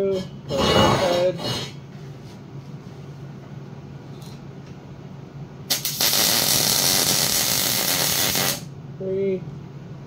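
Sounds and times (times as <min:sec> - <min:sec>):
arc welding sizzling crackle: 0:05.7 - 0:08.7.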